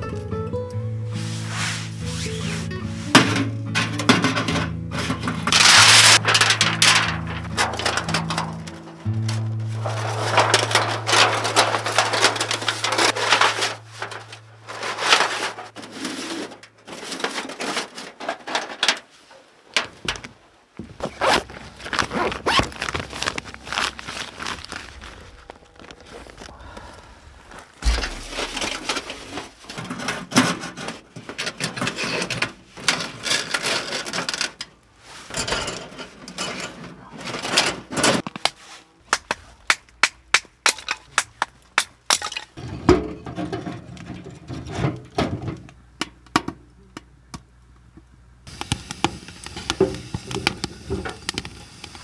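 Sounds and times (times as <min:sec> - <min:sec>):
tent fabric rustling: 0:01.1 - 0:03.3, 0:05.6 - 0:08.2, 0:09.1 - 0:18.1, 0:20.8 - 0:26.5, 0:27.3 - 0:29.8
wood fire crackling: 0:05.4 - 0:15.8, 0:18.6 - 0:30.0, 0:48.4 - 0:52.0
kindling sticks cracking: 0:05.5 - 0:14.4, 0:21.0 - 0:26.9.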